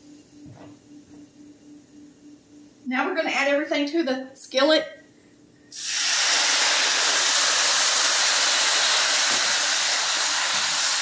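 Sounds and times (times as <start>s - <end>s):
broth sizzling in hot skillet: 5.7s - 11.0s.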